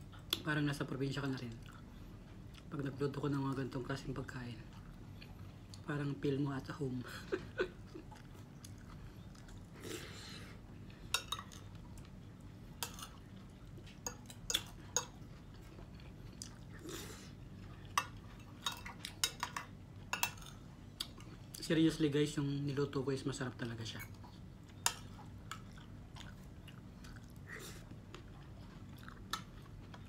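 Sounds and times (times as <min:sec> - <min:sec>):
chewing: 0:04.6 - 0:05.9, 0:07.8 - 0:21.6, 0:24.1 - 0:30.0.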